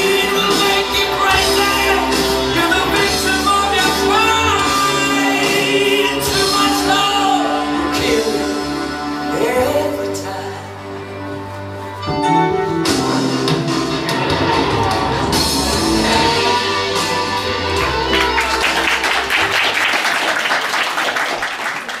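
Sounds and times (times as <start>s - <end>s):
music with bass line: 0.0s - 19.8s
audience applause: 14.2s - 22.0s.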